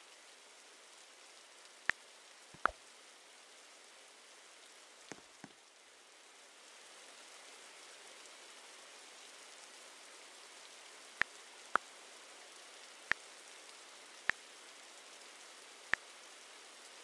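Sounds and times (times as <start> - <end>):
faint steady hiss: 0.0 - 17.0.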